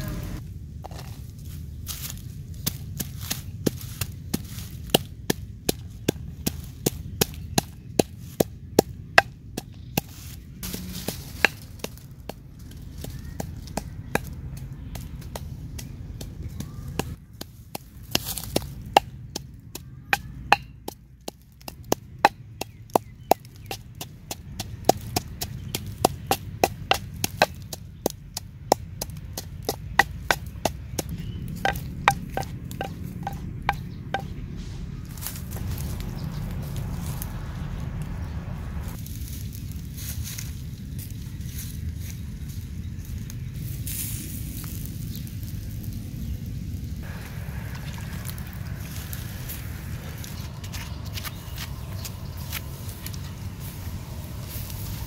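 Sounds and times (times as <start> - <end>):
pestle knocking in wooden mortar: 13.0 - 34.3.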